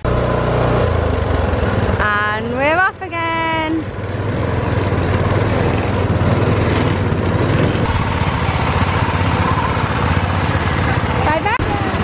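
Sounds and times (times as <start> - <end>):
small petrol engine running: 0.0 - 12.0
wheels rattling on rails: 0.8 - 12.0.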